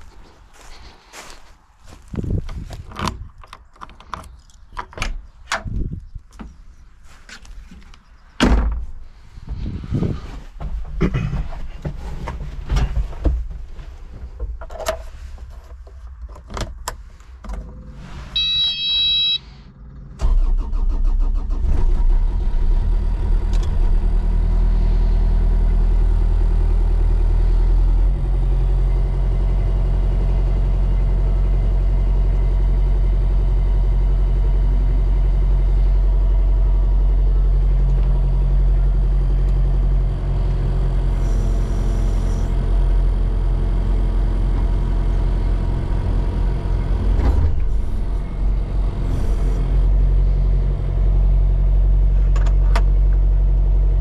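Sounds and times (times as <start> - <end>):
diesel engine starting and idling: 0.0 - 2.0, 16.5 - 54.0
knocks and thunks in cab: 8.4 - 9.8, 10.5 - 15.0
short electronic beep: 18.4 - 19.5.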